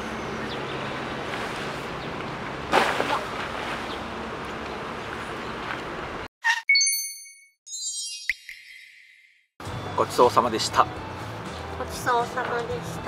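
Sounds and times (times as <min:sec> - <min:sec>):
outdoor background noise: 0:00.0 - 0:06.3.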